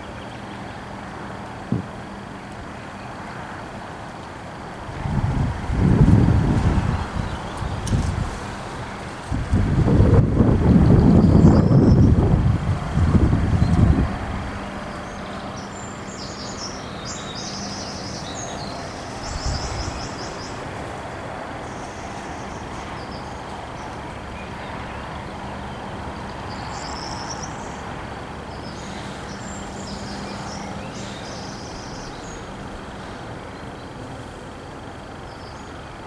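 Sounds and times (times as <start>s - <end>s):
brief low thump: 1.7s - 1.9s
wind noise on microphone: 4.7s - 15.7s, 17.4s - 33.5s
small birds chirping trills: 10.6s - 12.2s, 12.9s - 34.3s.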